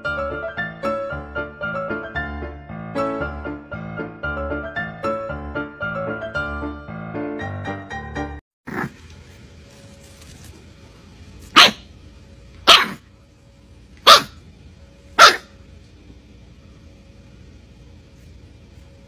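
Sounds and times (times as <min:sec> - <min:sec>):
puppy barking: 0:11.5 - 0:11.9, 0:12.6 - 0:13.0, 0:14.0 - 0:14.4, 0:15.2 - 0:15.6.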